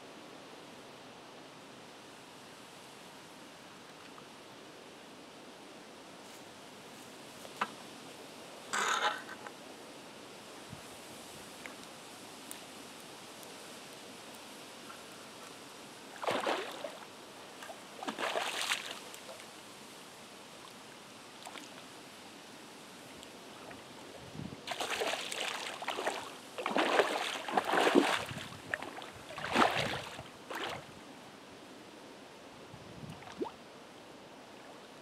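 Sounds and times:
water splashing and sloshing: 0:16.1 - 0:19.4, 0:24.7 - 0:31.0, 0:33.1 - 0:33.6.

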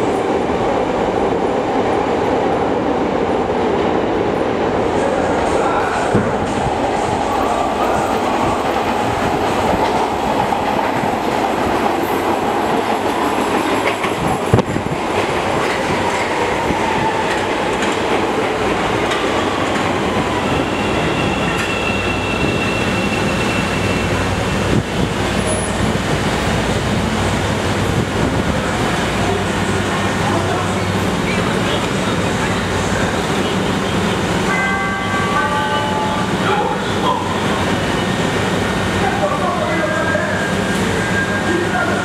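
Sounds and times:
train wheels rumbling on rails: 0:00.0 - 0:42.0
thin high brake squeal: 0:20.5 - 0:24.2.

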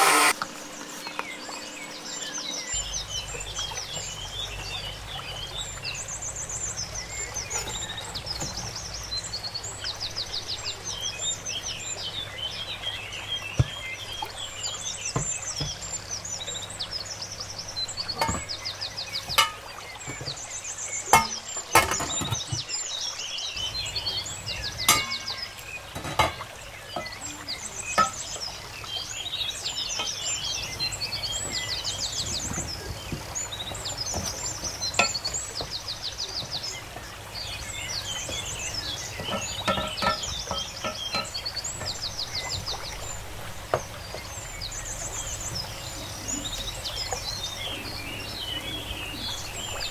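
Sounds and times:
small birds chirping: 0:00.0 - 0:49.9
utensils knocking on metal pot: 0:18.2 - 0:18.6, 0:19.3 - 0:20.4, 0:21.1 - 0:22.4, 0:24.8 - 0:27.2, 0:27.9 - 0:28.4, 0:34.9 - 0:35.4, 0:39.1 - 0:42.0.

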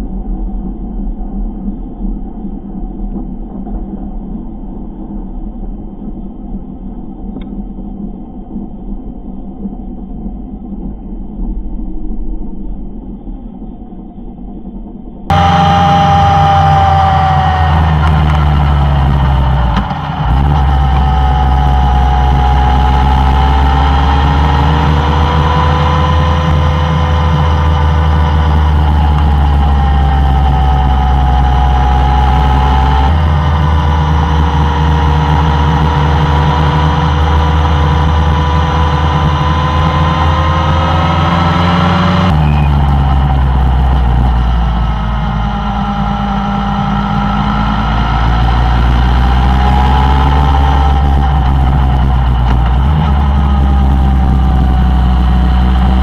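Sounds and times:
motorcycle engine cruising: 0:15.3 - 0:56.0.

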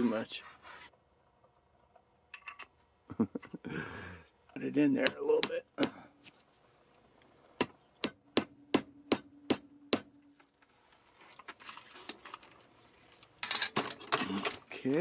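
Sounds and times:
faint scraping and handling: 0:00.0 - 0:01.0, 0:06.2 - 0:07.5, 0:10.5 - 0:14.5
hammer tapping steel rod: 0:04.6 - 0:06.0, 0:07.6 - 0:10.3.

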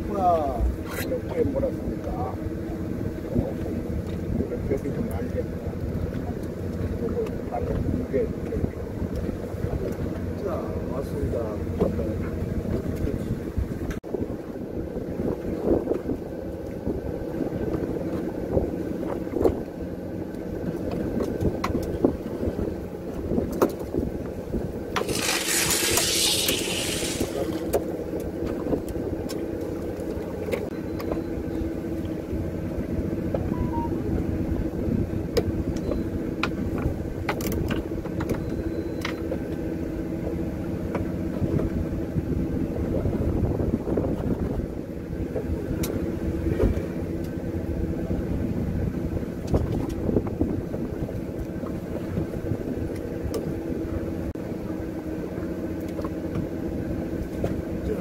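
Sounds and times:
boat engine droning: 0:00.0 - 0:15.2, 0:24.4 - 0:43.4
short hiss: 0:25.0 - 0:27.8.

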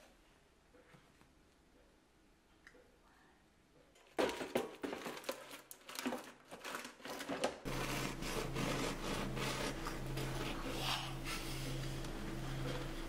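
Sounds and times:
aluminium foil crinkling: 0:04.8 - 0:10.5
steady low hum: 0:07.7 - 0:13.0.

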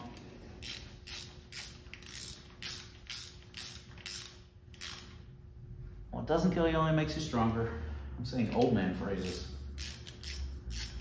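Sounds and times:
hand ratchet wrench rasping: 0:00.6 - 0:05.2, 0:09.2 - 0:11.0.

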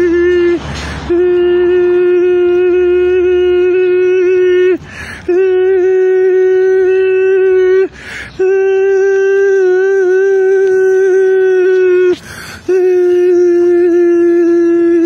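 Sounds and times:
man humming high note: 0:00.0 - 0:15.0
noisy in-breath: 0:00.6 - 0:01.1, 0:04.8 - 0:05.3, 0:07.9 - 0:08.4, 0:12.2 - 0:12.8.

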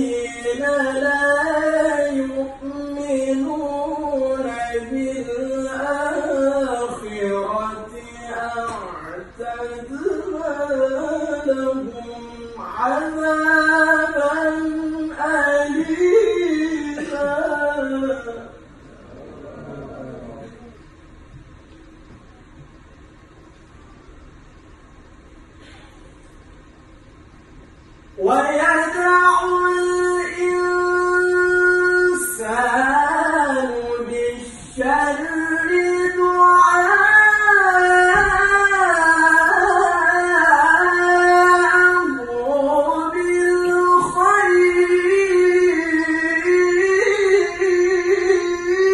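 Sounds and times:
man reciting in melodic chant: 0:00.0 - 0:20.8, 0:28.2 - 0:48.9
breath: 0:25.6 - 0:26.1.

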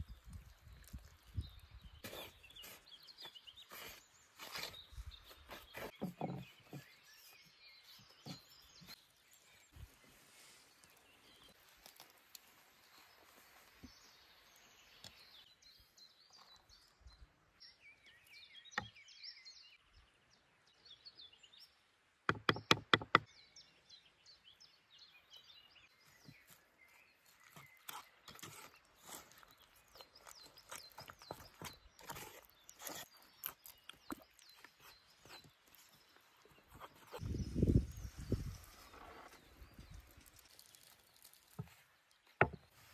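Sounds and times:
birds chirping: 0:22.5 - 0:42.9.

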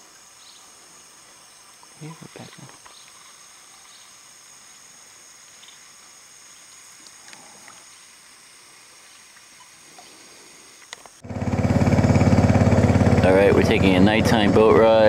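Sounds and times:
high-pitched insect drone: 0:00.0 - 0:11.3
faint ticks: 0:05.5 - 0:08.4, 0:09.0 - 0:11.2
boat motor running: 0:11.2 - 0:15.0.

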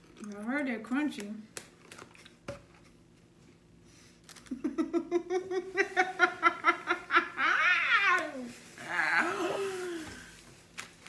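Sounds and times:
person laughing hard: 0:04.5 - 0:08.4.

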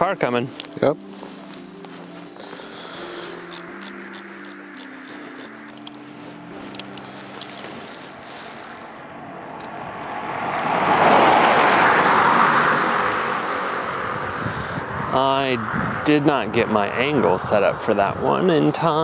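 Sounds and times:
car driving past on snow: 0:03.4 - 0:15.2.

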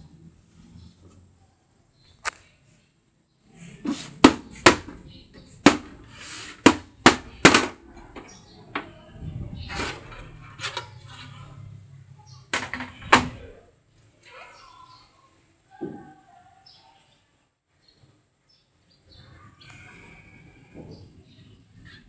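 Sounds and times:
cover scraping on metal chassis: 0:09.6 - 0:11.6
computer case panels knocking: 0:12.6 - 0:13.5.

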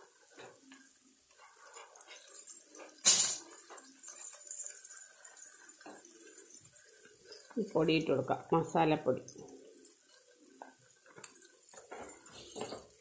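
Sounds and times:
onions sizzling: 0:00.0 - 0:13.0
steel kitchenware clink: 0:01.7 - 0:07.7, 0:11.2 - 0:13.0.

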